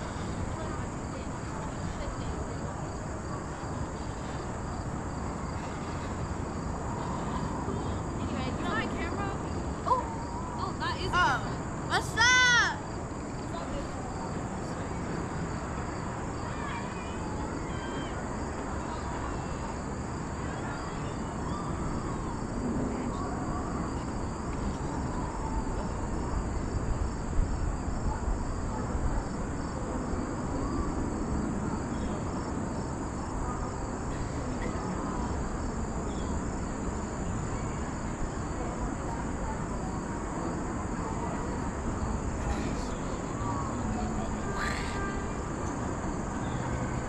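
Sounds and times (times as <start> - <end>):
insects pulsing chirp: 0.0 - 47.0
insects trilling: 0.0 - 47.0
wind rumble on microphone: 12.9 - 44.5.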